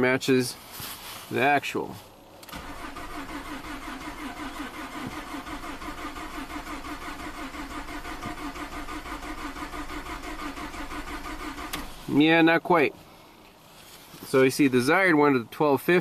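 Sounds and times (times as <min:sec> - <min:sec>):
engine cranking on starter: 0:02.4 - 0:12.2.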